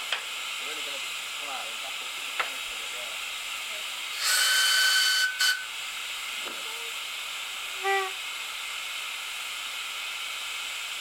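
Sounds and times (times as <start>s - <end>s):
steam hissing: 0.0s - 11.0s
locomotive whistle toot: 4.2s - 5.7s, 7.8s - 8.2s.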